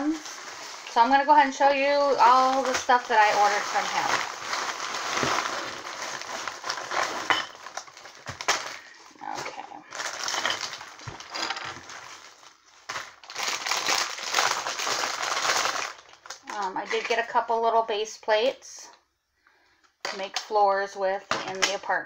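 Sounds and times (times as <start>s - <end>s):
plastic bags crinkling: 0.0s - 17.4s
envelope being opened: 2.4s - 16.4s.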